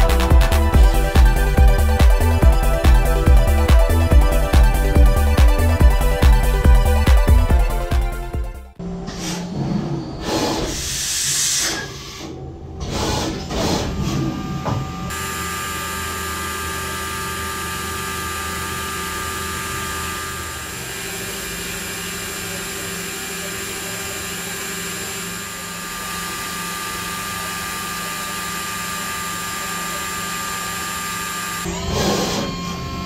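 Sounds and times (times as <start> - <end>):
grinding machine hiss: 10.1 - 14.4
steady whining tones: 11.7 - 33.0.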